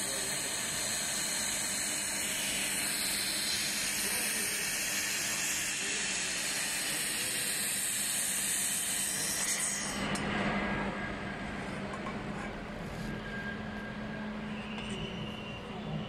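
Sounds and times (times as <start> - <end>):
gas hissing from nozzle: 0.0 - 9.7.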